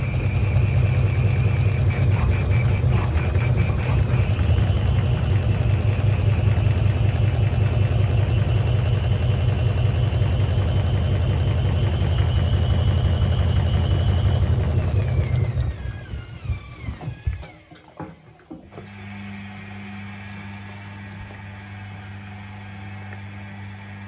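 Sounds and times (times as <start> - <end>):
washing machine spinning: 0.0 - 24.0.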